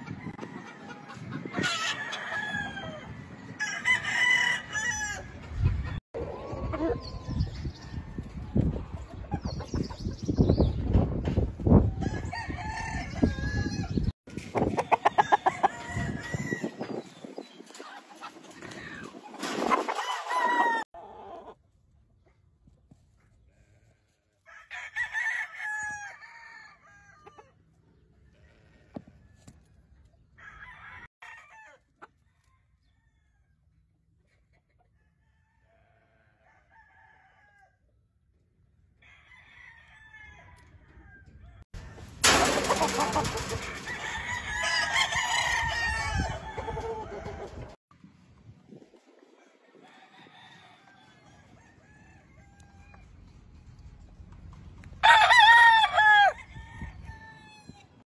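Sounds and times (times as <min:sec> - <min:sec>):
chickens clucking: 0:00.0 - 0:02.0, 0:05.4 - 0:07.6, 0:08.2 - 0:11.1, 0:14.0 - 0:16.1, 0:16.7 - 0:21.6, 0:41.8 - 0:43.9
roosters crowing: 0:00.0 - 0:08.7, 0:11.7 - 0:14.1, 0:14.8 - 0:17.0, 0:19.7 - 0:21.6, 0:24.4 - 0:27.6, 0:30.4 - 0:33.6, 0:39.0 - 0:47.8, 0:49.5 - 0:53.3, 0:55.0 - 0:58.0.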